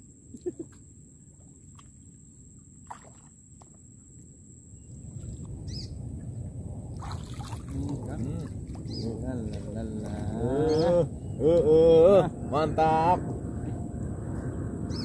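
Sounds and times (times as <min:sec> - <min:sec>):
low rumble: 0:04.4 - 0:15.0.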